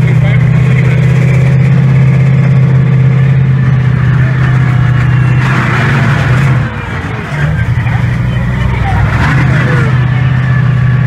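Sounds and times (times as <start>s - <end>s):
truck engine droning: 0.0s - 11.0s.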